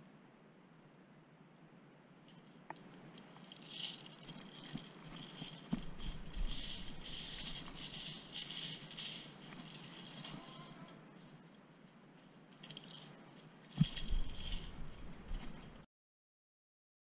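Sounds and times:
footsteps crunching on grit and leaves: 0:03.2 - 0:10.9, 0:12.7 - 0:15.8.

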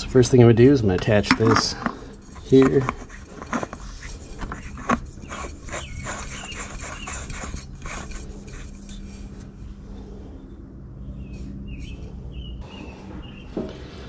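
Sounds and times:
filter clicks taps and rubbing: 0:00.9 - 0:06.4.

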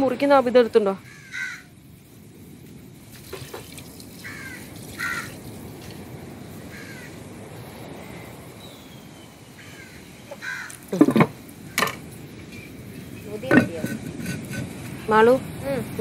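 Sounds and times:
low steady hiss: 0:00.0 - 0:16.0
crows cawing: 0:01.0 - 0:01.8, 0:04.2 - 0:05.4, 0:06.6 - 0:07.3, 0:09.6 - 0:12.0.

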